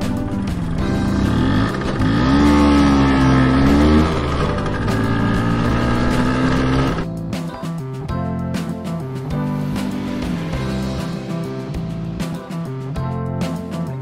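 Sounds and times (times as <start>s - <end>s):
motor scooter engine revving: 0.2s - 7.0s.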